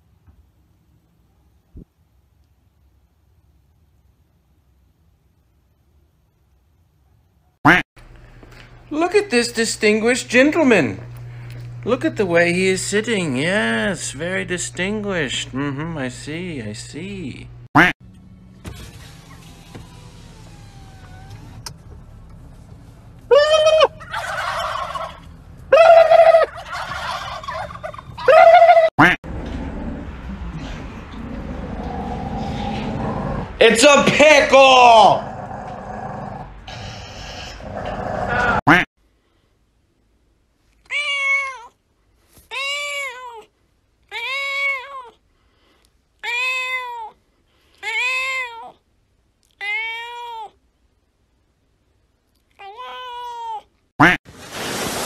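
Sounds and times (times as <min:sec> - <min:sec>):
turkeys gobbling: 0:23.3 - 0:28.9
cat meowing: 0:40.9 - 0:41.8, 0:42.5 - 0:43.5, 0:44.1 - 0:45.2, 0:46.2 - 0:47.2, 0:47.8 - 0:48.8, 0:49.5 - 0:50.6, 0:52.5 - 0:53.7.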